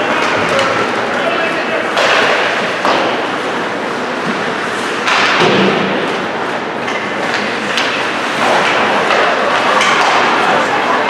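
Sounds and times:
crowd noise in rink: 0:00.0 - 0:11.0
hockey sticks and puck clacking: 0:00.0 - 0:11.0.

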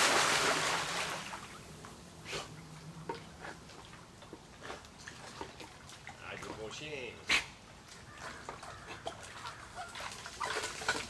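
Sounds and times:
dog paddling in water: 0:02.6 - 0:06.8, 0:07.9 - 0:11.0.

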